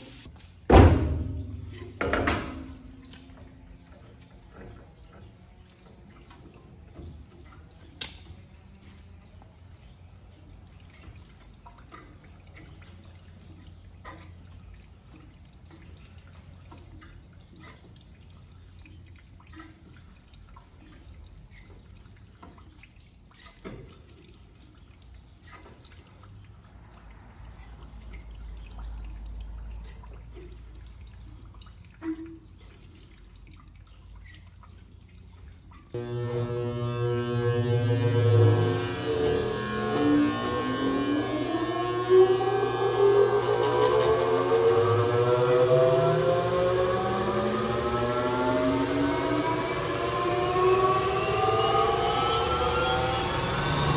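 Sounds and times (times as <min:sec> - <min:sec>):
water dripping and trickling: 0:00.1 - 0:53.9
steady low hum: 0:36.0 - 0:53.9.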